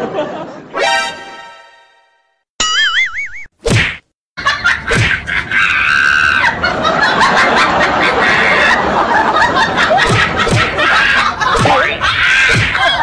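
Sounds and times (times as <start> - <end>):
people laughing: 0.0 - 0.8, 4.4 - 13.0.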